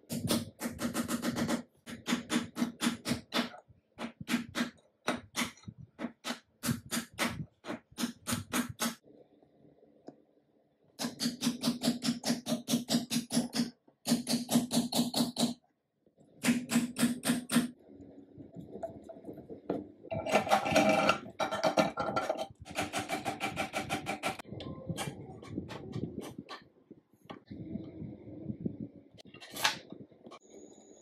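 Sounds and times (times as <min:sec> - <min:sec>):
metal parts scraping and knocking: 0:18.8 - 0:24.4, 0:29.2 - 0:29.9.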